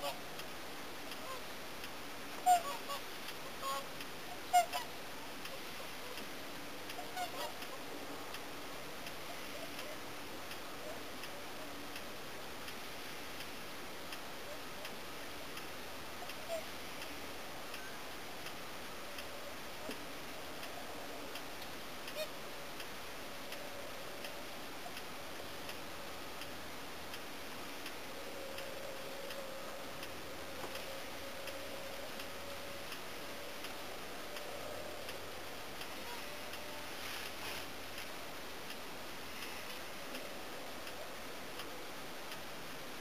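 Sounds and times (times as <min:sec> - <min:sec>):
swan calls: 0:00.0 - 0:00.3, 0:01.1 - 0:01.6, 0:02.3 - 0:06.3, 0:06.9 - 0:08.4, 0:14.4 - 0:26.4, 0:27.4 - 0:38.1
steady hiss: 0:00.0 - 0:43.0
tape mechanism ticking: 0:25.0 - 0:36.7.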